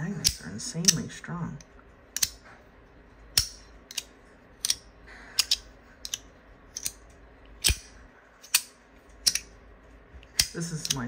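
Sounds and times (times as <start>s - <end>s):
fidget slider clicking: 5.4s - 7.0s.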